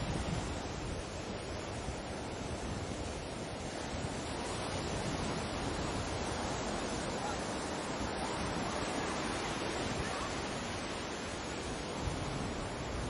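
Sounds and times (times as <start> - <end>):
sea waves washing: 0.0 - 13.0
wind: 0.0 - 13.0.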